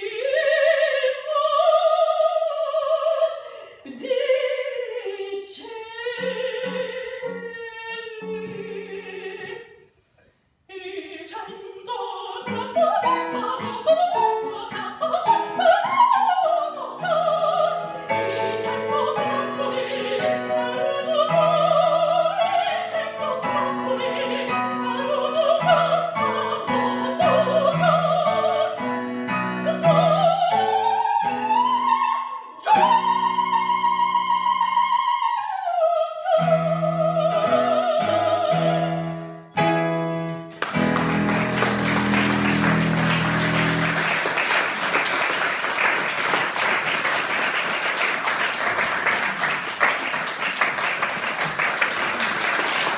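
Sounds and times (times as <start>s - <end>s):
woman singing opera: 0.0s - 9.8s, 10.7s - 39.1s
piano accompaniment: 12.4s - 32.1s, 36.4s - 52.9s
applause: 40.5s - 52.9s.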